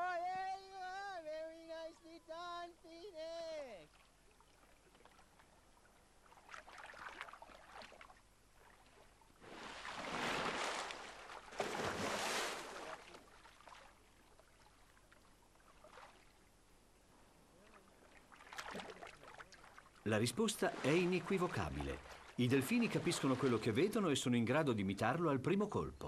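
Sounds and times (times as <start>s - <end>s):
dolphins splashing: 6.2s - 14.9s, 17.5s - 24.2s
loud rushes of water: 20.4s - 24.0s.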